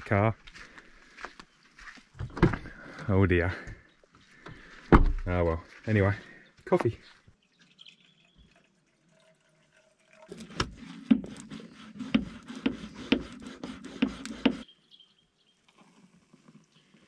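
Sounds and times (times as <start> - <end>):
milk frother pumped by hand: 10.4 - 14.6.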